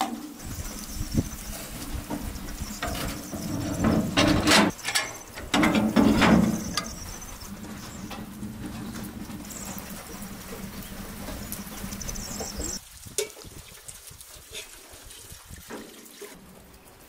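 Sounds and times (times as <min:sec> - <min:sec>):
wood fire low rumble: 0:00.2 - 0:14.4
cast-iron lid clanking and scraping: 0:01.5 - 0:12.8.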